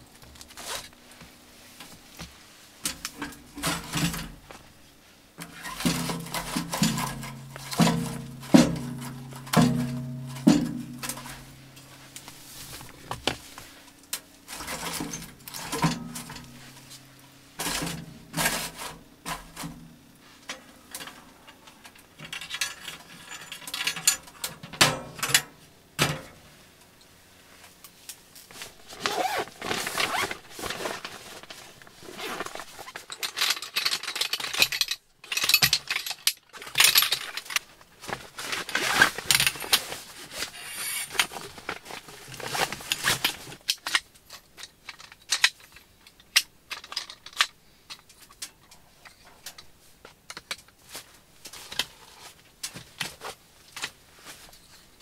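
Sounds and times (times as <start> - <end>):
metal tent poles clinking: 5.4 - 12.3, 28.5 - 49.7
bag and fabric rustling: 28.4 - 33.1.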